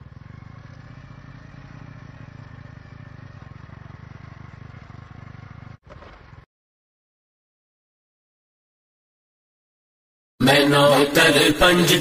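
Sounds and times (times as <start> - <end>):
motorcycle engine running: 0.0 - 6.4
road and wind noise: 0.0 - 6.4.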